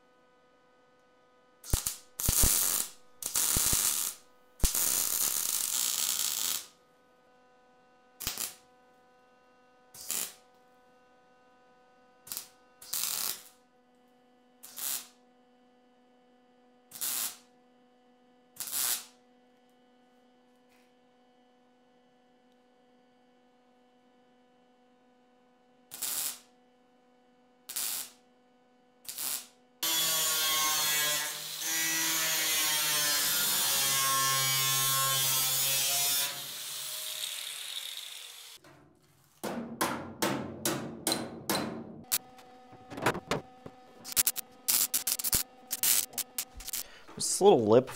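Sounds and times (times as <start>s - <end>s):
welder crackling: 1.6s - 6.7s, 8.2s - 8.6s, 10.0s - 10.4s, 12.3s - 13.6s, 42.1s - 47.9s
angle grinder grinding: 29.8s - 38.6s, 42.1s - 47.2s
steady hum: 42.1s - 47.9s.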